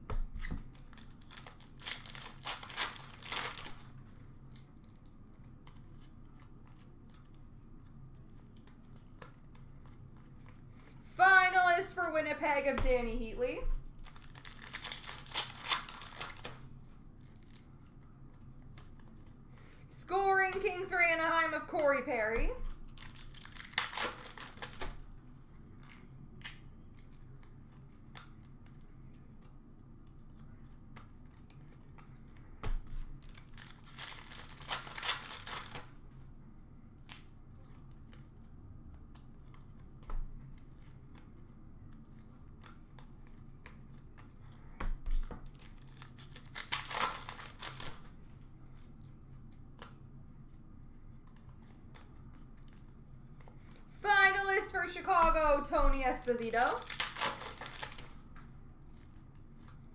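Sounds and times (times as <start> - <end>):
cards clicking and rustling: 0.1 - 3.8, 4.4 - 10.7, 13.9 - 19.7, 22.6 - 25.0, 25.6 - 35.9, 39.0 - 50.0, 51.2 - 59.9
wrapper tearing and crinkling: 0.5 - 7.3, 13.8 - 19.3, 22.6 - 28.5, 32.9 - 36.0, 45.2 - 49.2, 56.1 - 59.9.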